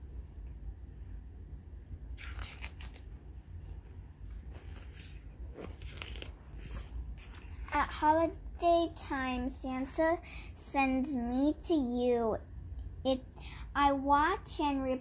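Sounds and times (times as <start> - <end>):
book pages turning: 2.2 - 7.9.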